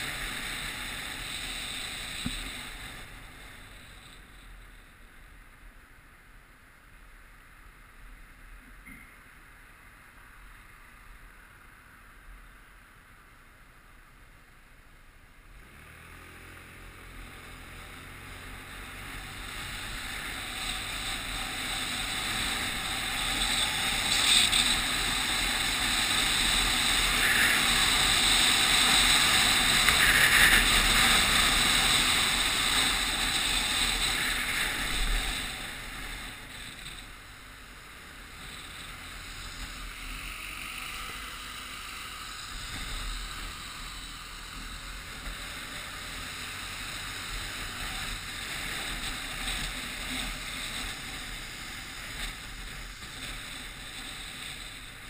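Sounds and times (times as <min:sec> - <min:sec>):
road noise: 0:00.0 - 0:55.0.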